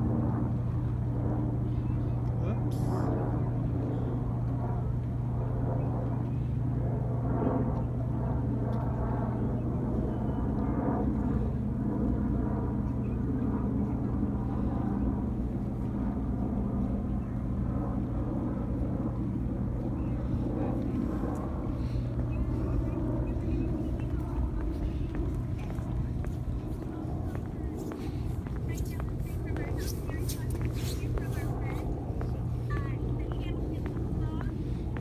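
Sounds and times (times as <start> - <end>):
low engine drone: 0.0 - 35.0.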